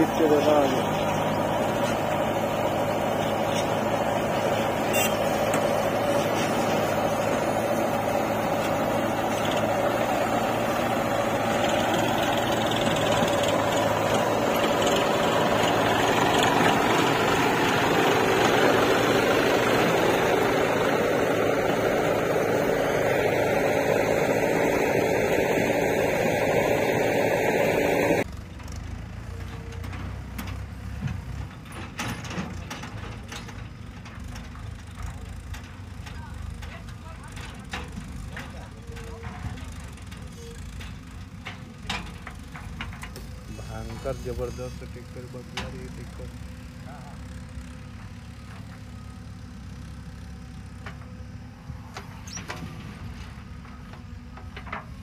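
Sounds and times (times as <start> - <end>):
distant machine sound: 0.0 - 28.2
tractor diesel engine running: 0.0 - 55.0.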